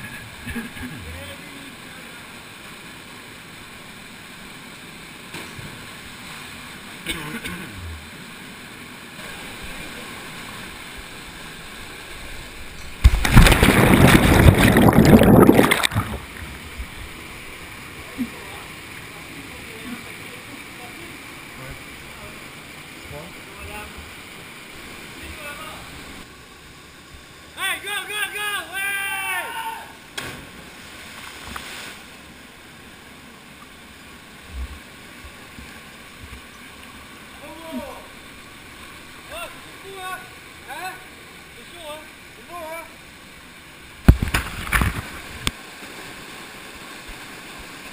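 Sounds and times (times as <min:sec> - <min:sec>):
churning water rush: 0:00.0 - 0:47.9
stream water running through rocks: 0:00.1 - 0:27.8, 0:30.0 - 0:47.9
waterfall rushing: 0:09.2 - 0:26.3
person plunging into water: 0:13.0 - 0:16.7, 0:30.1 - 0:31.8.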